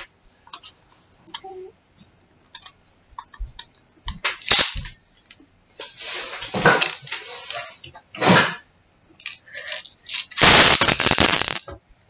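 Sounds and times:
toy parts clicking and rattling: 2.4s - 4.7s, 9.2s - 10.9s.

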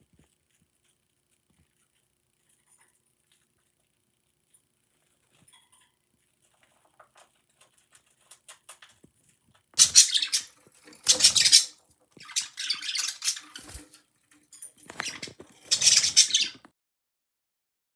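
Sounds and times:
budgerigar chatter and squawks: 9.8s - 13.8s, 14.9s - 16.6s.

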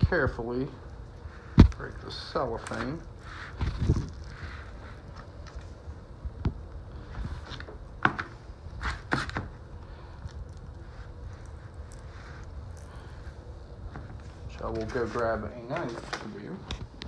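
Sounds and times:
cellophane wrap rustling and crinkling: 1.5s - 5.8s.

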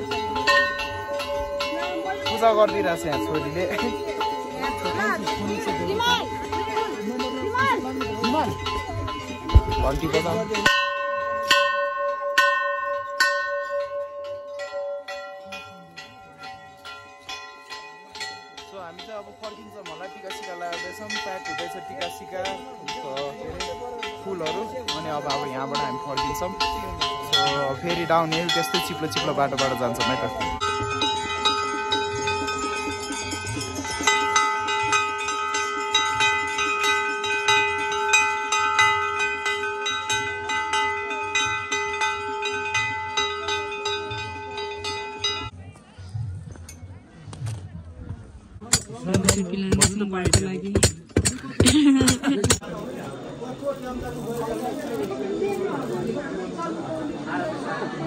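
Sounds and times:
metal bell ringing: 0.0s - 45.5s.

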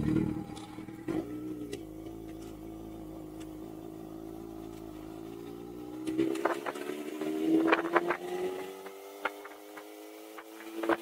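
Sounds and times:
motorcycle engine idling: 0.0s - 6.8s.

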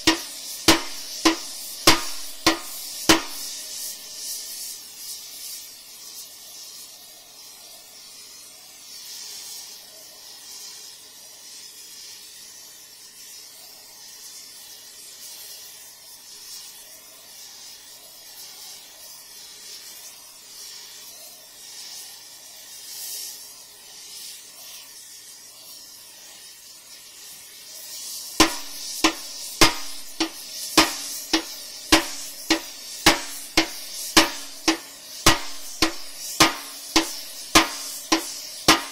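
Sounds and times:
hammer blows on steel: 0.0s - 3.6s, 28.4s - 38.9s
heating torch hissing: 0.0s - 38.9s.

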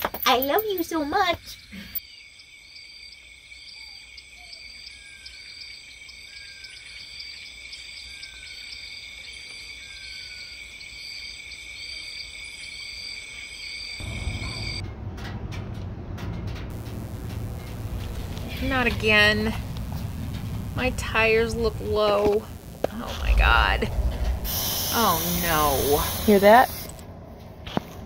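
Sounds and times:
insects chirping: 0.0s - 14.8s, 16.7s - 27.0s
low rumble: 14.0s - 28.0s.

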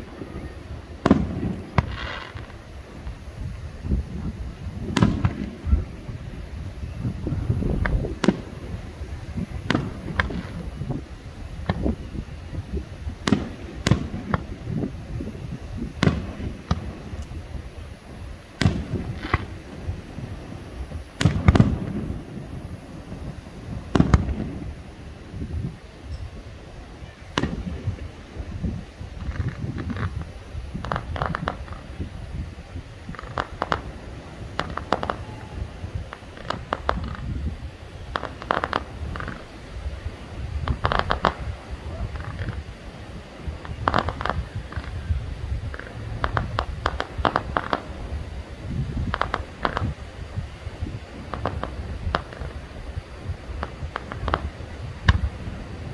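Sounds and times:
fireworks bangs: 0.0s - 55.9s
low rumble: 38.8s - 50.0s.

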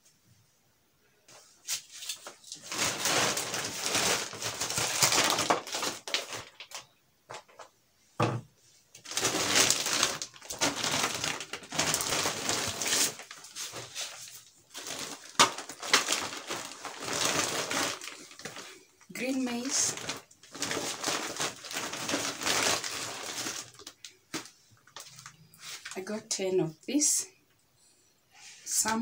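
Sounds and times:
shopping bag rustling: 1.8s - 6.8s, 9.0s - 26.0s.

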